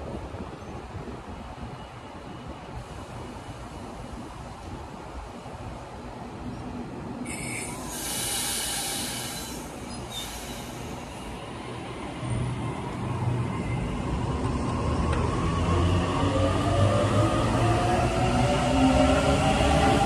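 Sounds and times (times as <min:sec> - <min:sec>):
train hiss: 0:07.2 - 0:11.9
electric train humming: 0:07.2 - 0:20.0.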